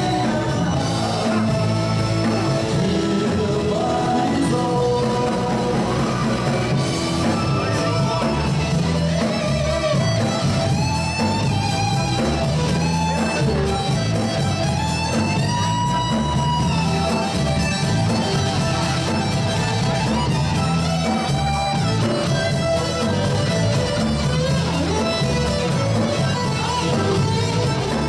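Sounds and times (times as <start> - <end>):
man singing: 0.0 - 8.8
drums and keyboard: 0.0 - 28.0
electric guitar: 0.0 - 28.0.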